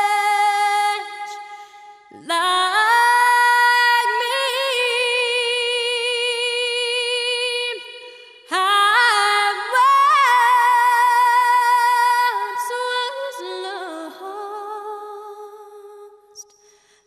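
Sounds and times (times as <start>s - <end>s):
woman singing with vibrato: 0.0s - 16.4s.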